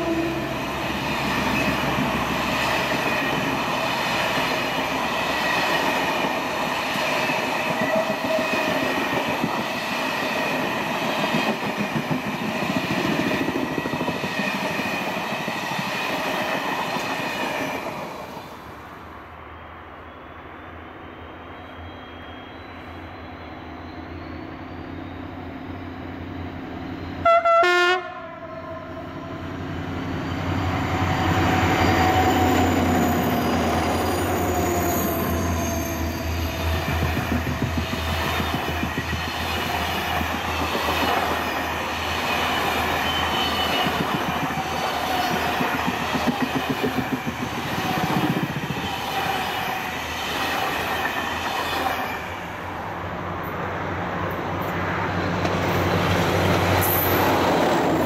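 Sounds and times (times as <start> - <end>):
second train approaching: 0.0 - 58.0
locomotive horn blast: 27.2 - 29.5
train wheels clattering over rail joints: 42.0 - 49.1.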